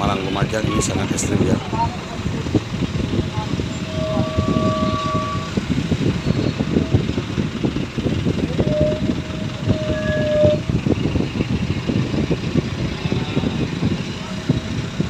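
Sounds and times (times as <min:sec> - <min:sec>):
motorcycle and car engines: 0:00.0 - 0:15.0
short horn beeps: 0:03.2 - 0:06.9, 0:08.6 - 0:10.6.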